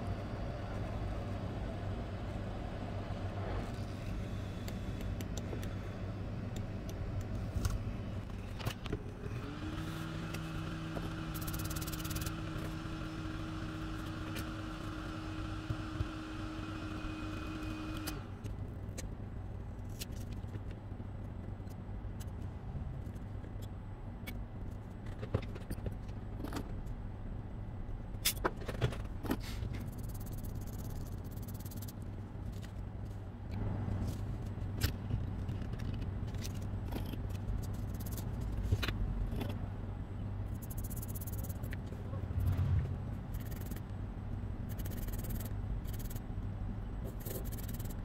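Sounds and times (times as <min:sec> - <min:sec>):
electrical hum: 0:29.0 - 0:48.0.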